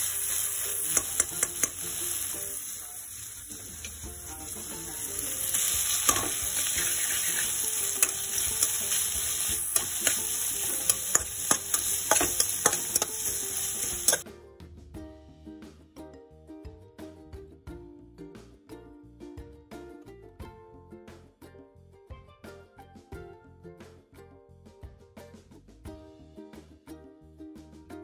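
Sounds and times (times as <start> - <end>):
metal spatula scraping a pan: 0.0 - 14.2
vegetables sizzling in oil: 0.0 - 14.2
spatula clicking against pan: 0.8 - 1.9, 5.6 - 14.2.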